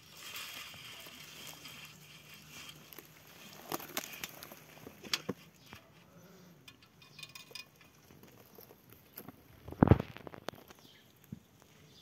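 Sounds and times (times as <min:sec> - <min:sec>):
footsteps crunching on bark mulch: 0:02.4 - 0:05.0.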